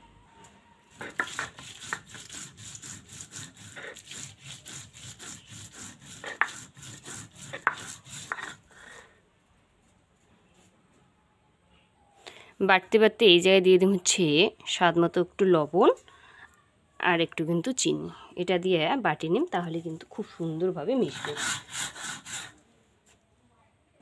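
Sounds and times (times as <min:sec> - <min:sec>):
stone roller rubbing on stone slab: 0:00.9 - 0:09.0, 0:19.9 - 0:22.6.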